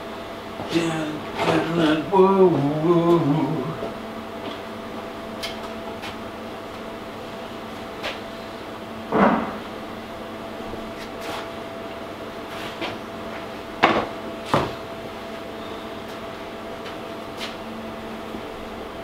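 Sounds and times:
steady electrical hum: 0.0 - 19.0
sharp knocks: 9.1 - 9.6.

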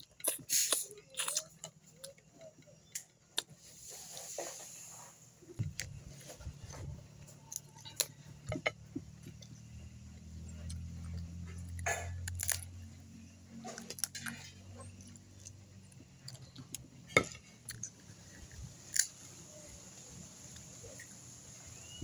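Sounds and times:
low steady hum: 5.3 - 22.0
crab shells cracking: 10.7 - 12.8, 18.8 - 19.2.

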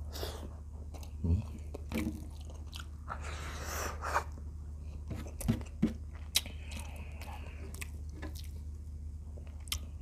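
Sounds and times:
chewing food: 0.8 - 3.2, 5.2 - 10.0.

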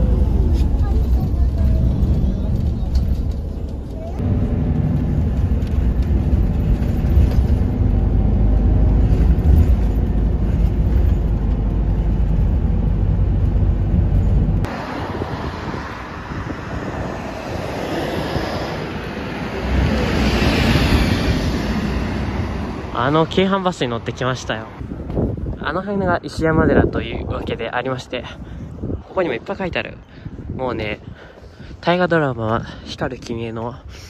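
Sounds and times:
bus passing: 0.0 - 25.3
bus engine rumble: 0.0 - 25.7
street noise: 0.0 - 34.0.

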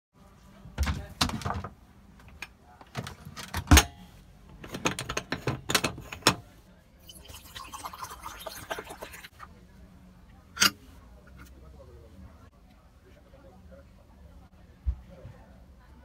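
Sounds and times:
water pouring: 7.0 - 9.4.

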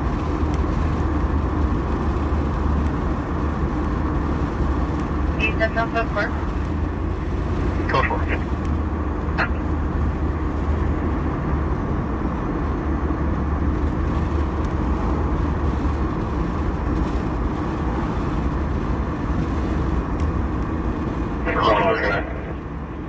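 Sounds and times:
car cabin road rumble: 0.0 - 23.0.

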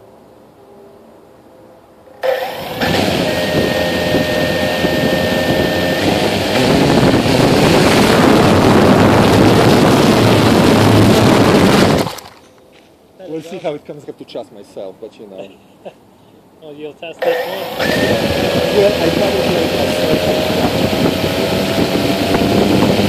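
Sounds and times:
propeller wash rushing over microphone: 2.2 - 12.3, 17.3 - 23.0
quadcopter motors whining: 2.2 - 12.5, 17.2 - 23.0.

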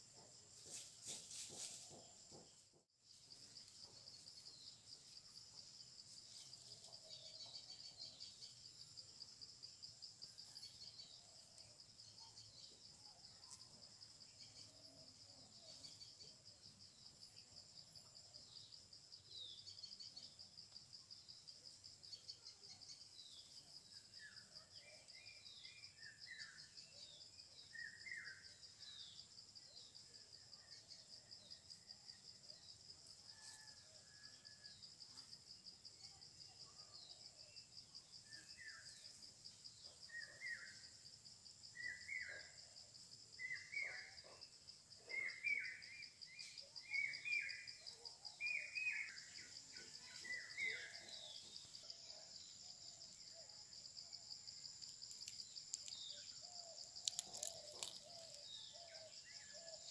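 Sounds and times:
high insect trill: 0.0 - 59.9
bird chirps: 45.0 - 52.3, 55.1 - 59.9.

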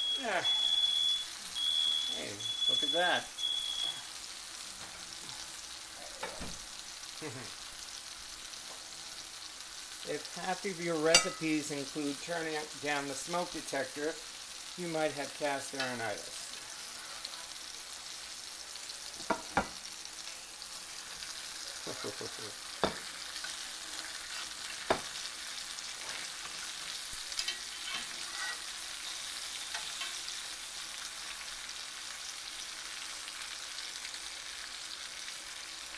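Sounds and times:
chicken sizzling in skillet: 0.0 - 35.9
tongs clicking on pan: 11.1 - 11.6, 15.7 - 16.1, 26.0 - 30.5.

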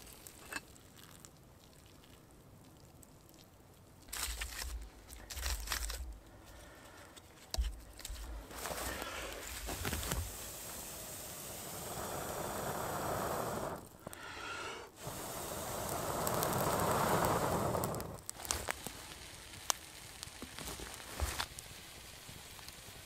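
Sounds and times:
breath blown into campfire embers: 5.2 - 19.2.

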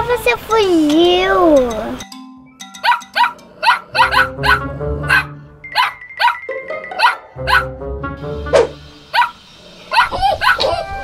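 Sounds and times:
light background music: 0.0 - 11.0
small dog barking: 2.8 - 7.7, 9.1 - 10.8.

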